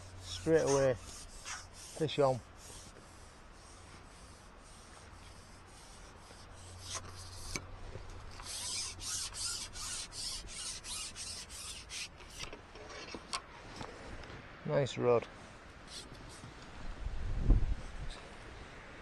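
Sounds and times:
wind buffeting microphone: 16.7 - 18.3.

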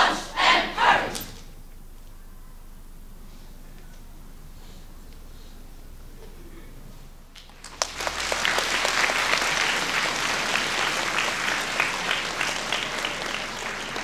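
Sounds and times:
crowd applause: 7.5 - 14.0.

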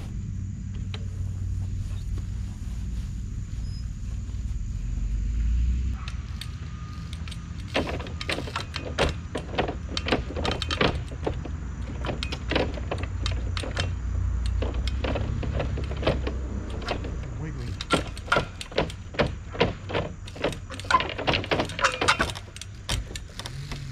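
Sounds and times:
low rumble: 0.0 - 6.0
bike chain and frame clattering: 5.9 - 23.9
bike tyres knocking on wood: 7.7 - 17.2, 17.9 - 23.1.

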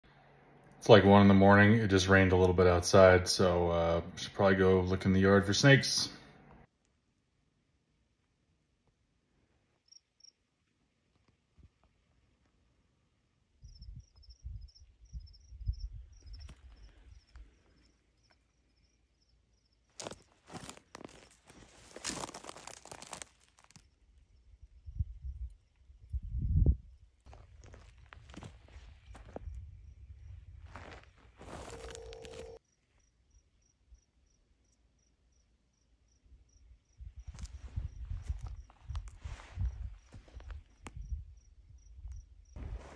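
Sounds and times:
crickets chirping: 9.7 - 10.4, 13.5 - 42.9
footsteps crunching in dry grass: 20.0 - 23.9, 27.3 - 29.6, 30.2 - 32.6, 37.2 - 40.9, 42.6 - 42.9.

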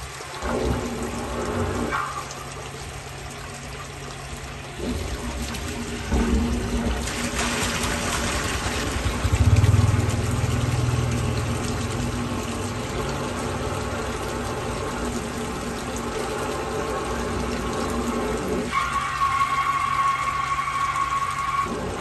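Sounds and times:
drain cleaning machine hum: 0.0 - 22.0
water pouring from pipe: 0.0 - 22.0.

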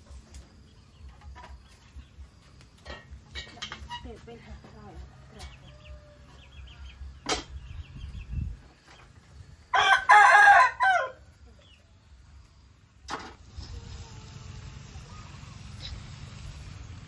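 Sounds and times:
rooster crowing: 5.2 - 6.4, 9.7 - 11.3.

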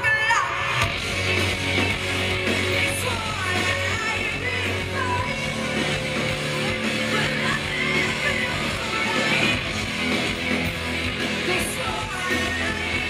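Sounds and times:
rock band playing live: 0.0 - 13.0
person singing: 2.6 - 9.7, 11.3 - 13.0.

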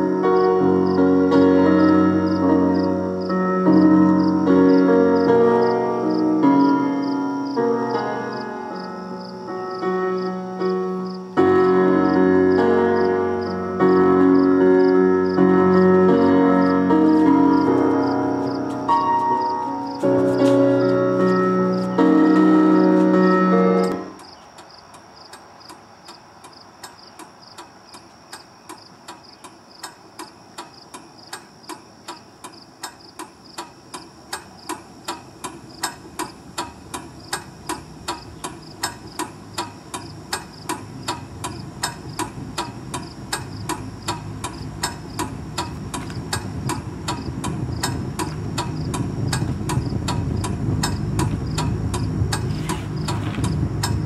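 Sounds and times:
clock-like ticking: 23.8 - 54.0
low rumble: 44.3 - 54.0.

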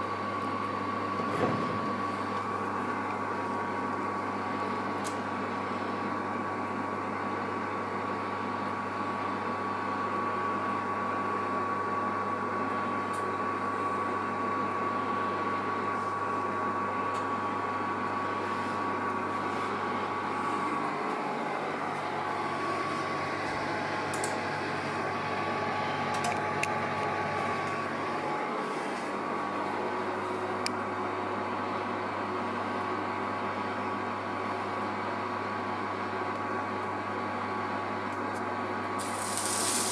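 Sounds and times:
steady hum and hiss: 38.3 - 39.9.

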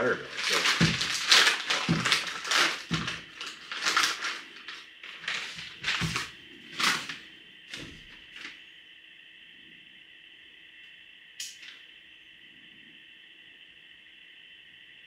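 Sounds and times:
crinkly bag rustling: 0.0 - 8.6.

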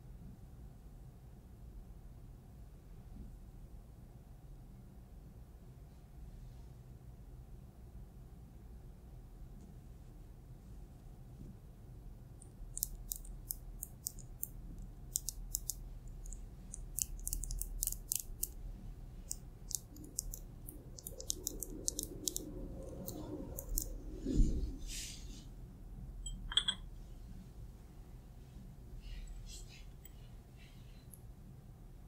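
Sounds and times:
fingernails scratching: 19.3 - 23.9
small clink: 26.2 - 26.9.

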